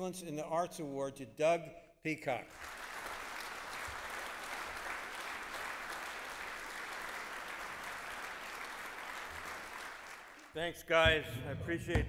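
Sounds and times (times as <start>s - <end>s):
audience applauding: 2.5s - 10.6s.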